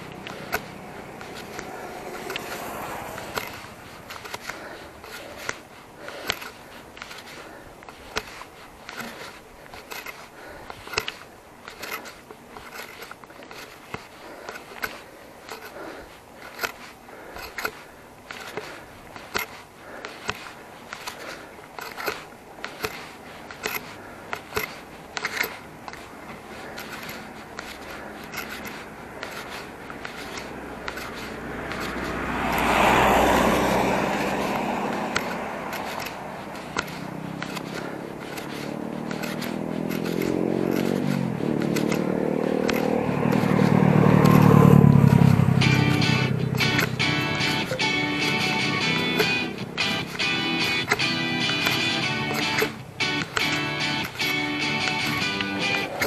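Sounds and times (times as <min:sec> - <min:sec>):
engine climbing in pitch: 0:00.0 - 0:13.7, 0:14.3 - 0:56.0
motor vehicle passing: 0:00.0 - 0:56.0.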